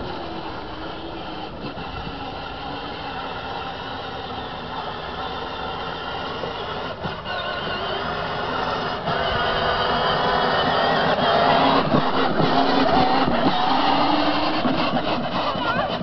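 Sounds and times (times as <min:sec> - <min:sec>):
toy motorcycle motor whine: 0:00.0 - 0:16.0.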